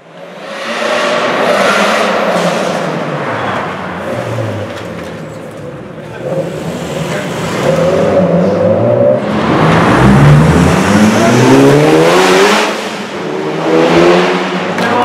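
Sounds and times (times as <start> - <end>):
car engine accelerating in tunnel: 6.0 - 14.8.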